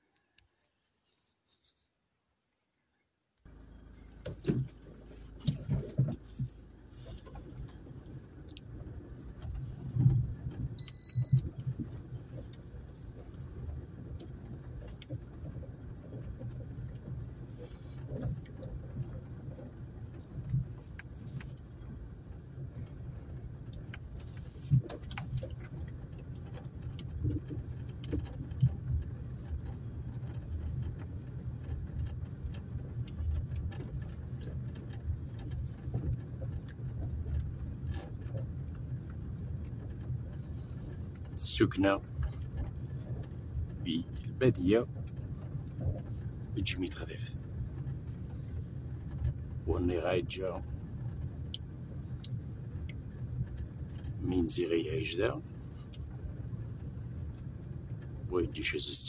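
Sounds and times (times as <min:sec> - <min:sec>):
car engine and tyres rumbling: 0:00.0 - 0:59.0
rattles and knocks over bumps: 0:03.5 - 0:59.0
short high beep: 0:10.8 - 0:11.4.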